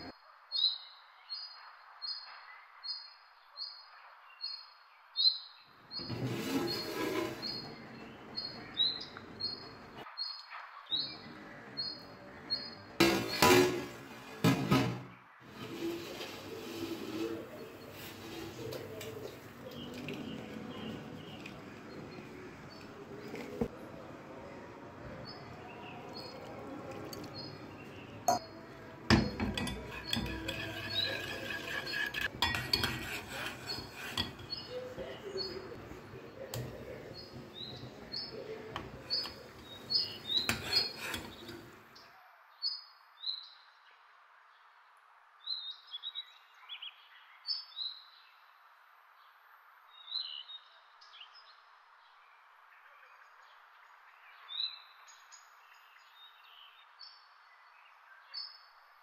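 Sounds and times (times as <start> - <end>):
metal spoon scraping metal pan: 5.9 - 9.6, 13.0 - 14.9, 15.5 - 23.7, 25.2 - 41.8.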